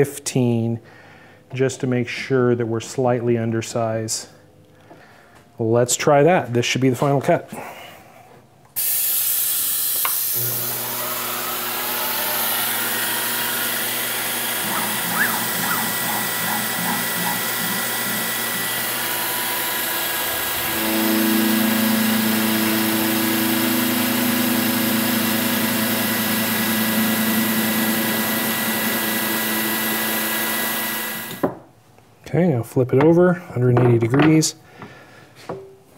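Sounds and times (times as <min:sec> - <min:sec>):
hiss of coolant spray: 0:08.8 - 0:10.4
milling machine spindle cutting metal: 0:10.4 - 0:31.4.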